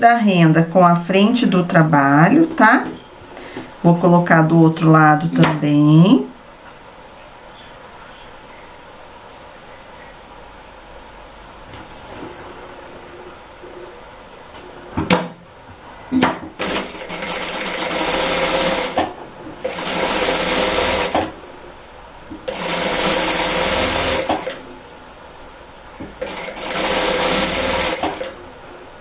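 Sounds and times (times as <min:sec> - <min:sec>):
sewing machine stitching: 0:16.6 - 0:21.3, 0:22.4 - 0:24.6, 0:26.2 - 0:28.4.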